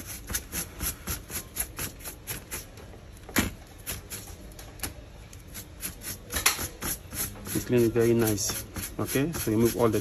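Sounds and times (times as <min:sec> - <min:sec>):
brush sweeping plastic: 0:05.5 - 0:10.0.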